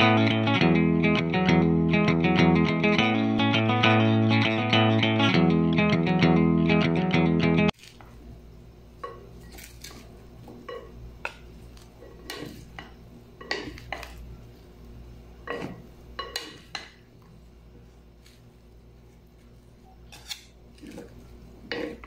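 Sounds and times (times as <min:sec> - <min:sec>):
guitar music: 0:00.0 - 0:07.7.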